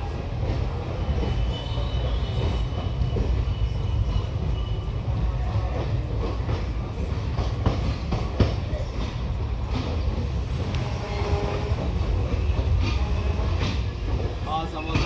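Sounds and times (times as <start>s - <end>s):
train wheels rumbling on track: 0.0s - 15.0s
wheels clacking over rail joints: 5.7s - 15.0s.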